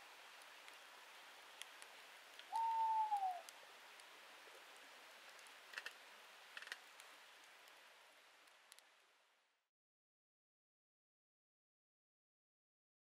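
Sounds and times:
campfire crackling: 0.0s - 9.6s
owl hooting: 2.5s - 3.5s.

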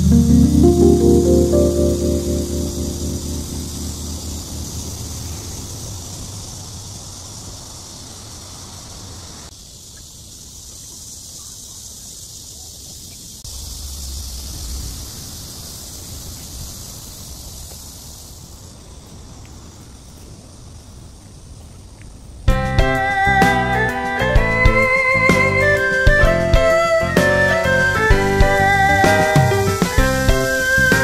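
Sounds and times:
steady high hiss: 0.0s - 31.0s
wind noise on microphone: 18.7s - 31.0s.

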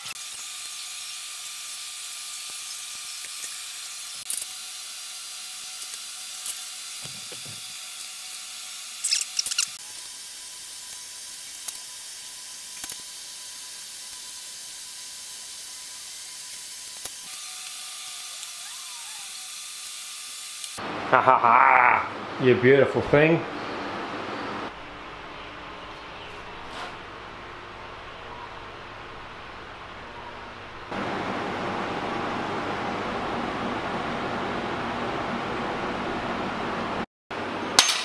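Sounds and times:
metal parts clicking: 9.0s - 9.8s.

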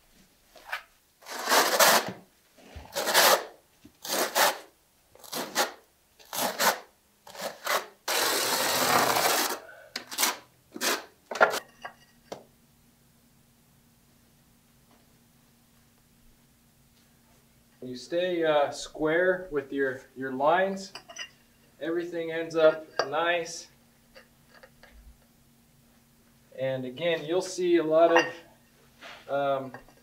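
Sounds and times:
trowel scraping mortar: 1.2s - 2.2s, 2.9s - 11.7s.

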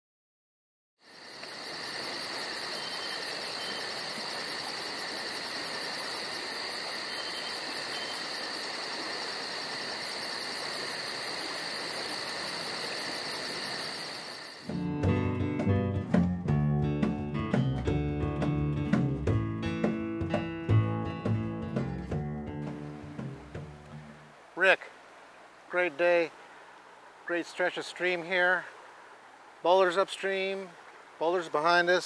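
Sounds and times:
insects trilling: 1.0s - 14.8s
soft hiss: 22.6s - 32.0s.

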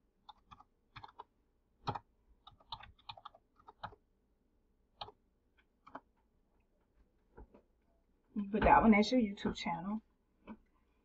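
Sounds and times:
keyboard typing: 0.2s - 4.1s, 4.9s - 6.2s.

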